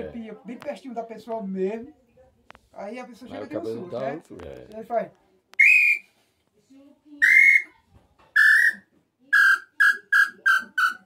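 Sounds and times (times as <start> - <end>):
bird-call whistle: 5.6 - 6.1, 7.2 - 7.7, 8.4 - 11.0.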